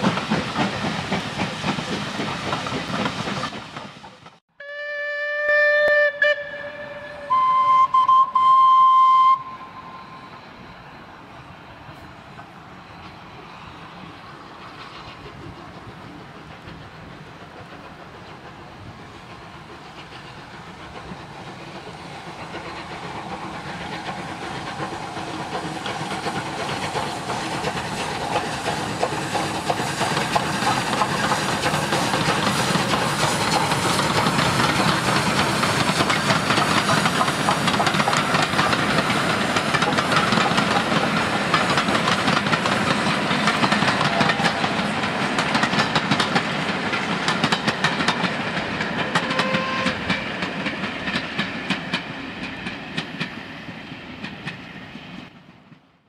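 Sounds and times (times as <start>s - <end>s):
steam train running past: 0.0s - 56.0s
wheels clattering over rail joints: 16.2s - 53.4s.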